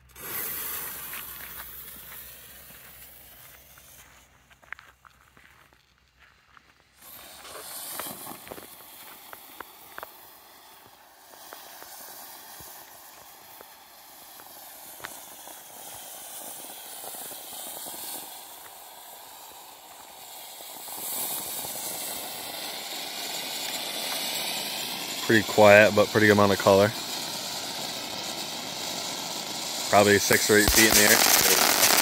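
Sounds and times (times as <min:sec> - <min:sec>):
firework fountain hissing: 0:00.0 - 0:04.6, 0:06.8 - 0:32.0
crackling pops: 0:06.9 - 0:18.8, 0:23.4 - 0:32.0.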